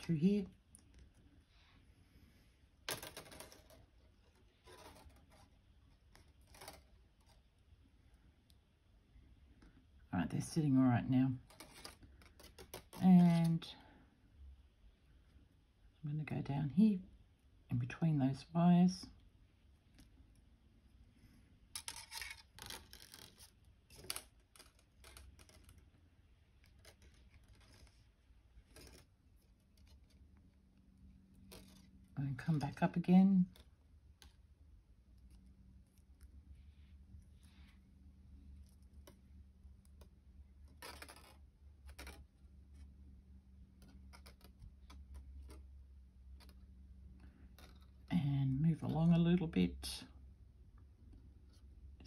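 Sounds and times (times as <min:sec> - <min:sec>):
wire scraping and rustling: 0:02.9 - 0:07.6, 0:11.4 - 0:13.7, 0:21.7 - 0:48.1.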